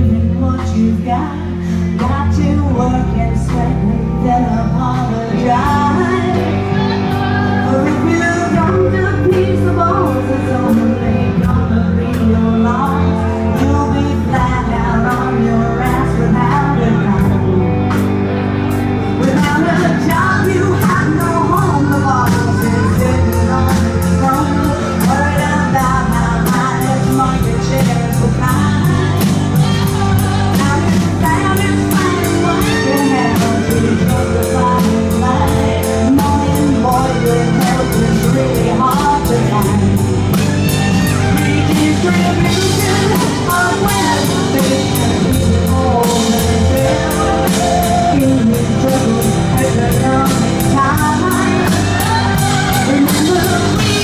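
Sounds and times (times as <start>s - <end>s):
woman singing: 0.0s - 18.1s, 19.1s - 54.0s
punk rock band playing: 0.0s - 54.0s.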